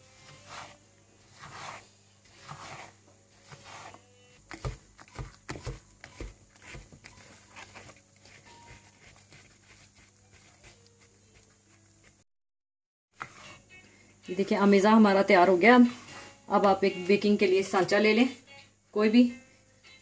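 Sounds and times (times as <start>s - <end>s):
whisk scraping bowl: 0.2s - 4.0s, 6.5s - 12.2s.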